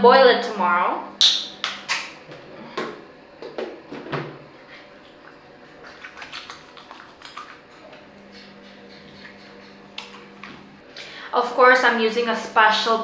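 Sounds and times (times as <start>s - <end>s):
small clicks while washing: 5.0s - 10.7s.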